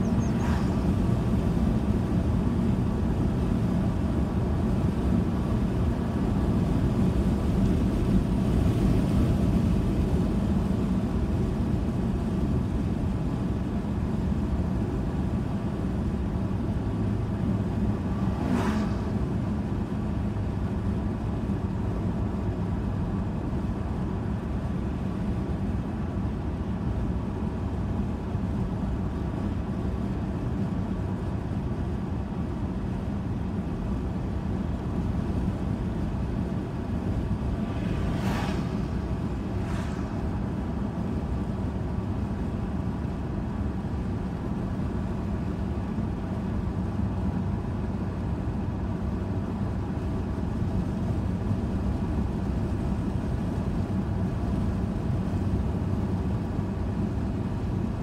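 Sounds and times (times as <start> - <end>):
passing vehicles whooshing: 0.0 - 1.8, 17.5 - 20.4, 35.9 - 42.3
car cabin road and engine noise: 0.0 - 58.0.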